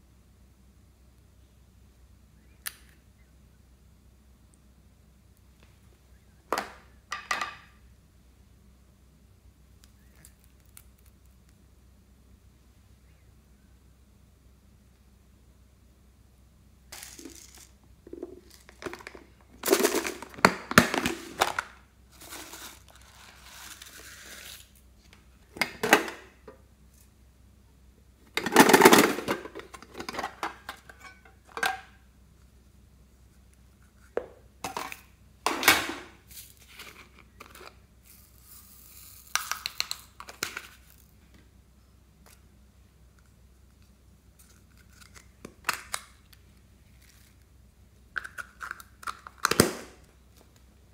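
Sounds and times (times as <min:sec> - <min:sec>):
plastic containers clicking and clacking: 0:18.1 - 0:21.7, 0:28.3 - 0:31.9.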